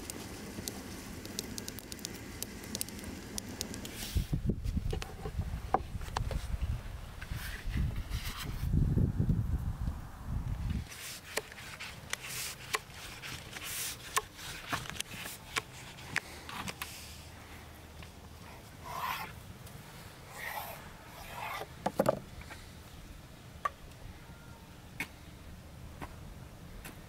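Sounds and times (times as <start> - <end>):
wooden knocks: 21.8 - 22.2.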